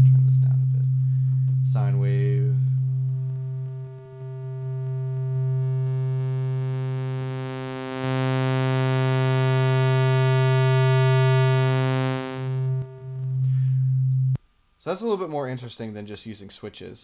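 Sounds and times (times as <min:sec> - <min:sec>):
synthesizer low note: 0:01.7 - 0:14.4.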